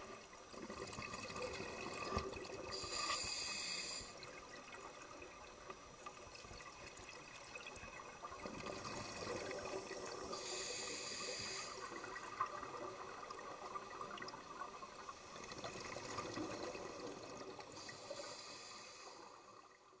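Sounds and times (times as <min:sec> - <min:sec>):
exhaled bubbles gurgling: 0:00.0 - 0:19.9
regulator inhale hiss: 0:02.7 - 0:04.3, 0:10.2 - 0:12.2, 0:17.7 - 0:19.6.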